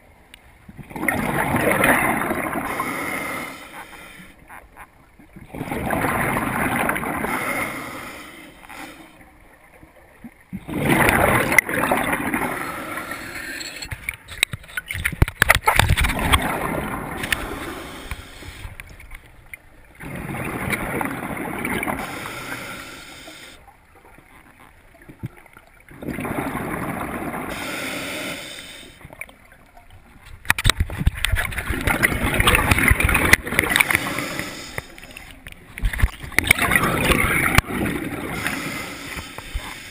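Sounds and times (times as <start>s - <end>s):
exhaled air bubbling: 0.7s - 8.2s, 10.5s - 19.1s, 19.9s - 23.6s, 24.9s - 29.2s, 30.5s - 39.9s
diver breathing through regulator: 2.5s - 4.4s, 7.1s - 9.2s, 12.4s - 13.9s, 17.2s - 18.8s, 21.8s - 23.6s, 27.4s - 29.0s, 33.6s - 35.3s, 36.7s - 39.9s.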